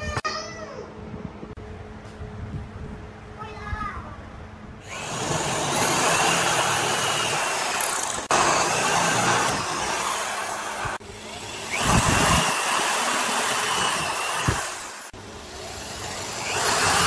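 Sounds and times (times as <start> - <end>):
cordless drill boring into wood: 4.8 - 17.0.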